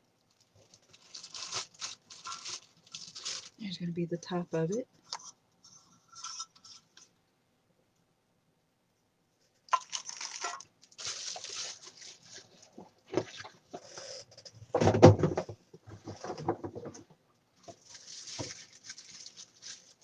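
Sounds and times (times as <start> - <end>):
packaging rustling and crinkling: 0.1 - 3.8, 9.7 - 14.3, 17.6 - 20.0
heavy thump of object set down: 14.7 - 16.9.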